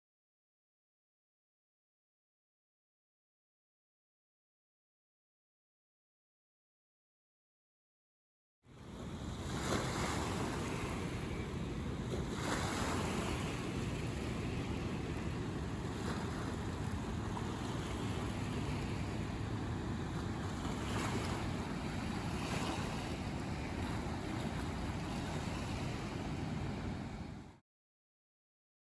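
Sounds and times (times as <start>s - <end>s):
wind buffeting microphone: 8.7s - 27.6s
floodwater rushing: 8.8s - 27.5s.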